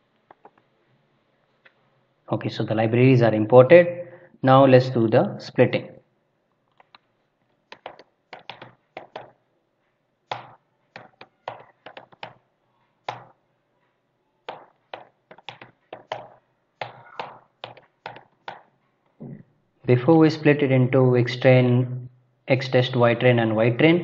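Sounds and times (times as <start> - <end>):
computer keyboard typing: 7.7 - 9.4, 10.3 - 12.4, 14.5 - 18.6.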